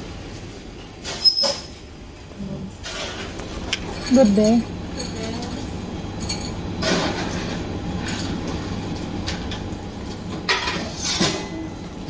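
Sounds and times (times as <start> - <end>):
indoor crowd rumble and hum: 3.6 - 6.8.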